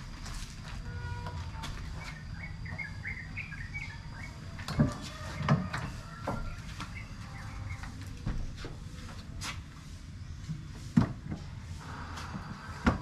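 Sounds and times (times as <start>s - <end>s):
small birds chirping: 1.8s - 8.6s.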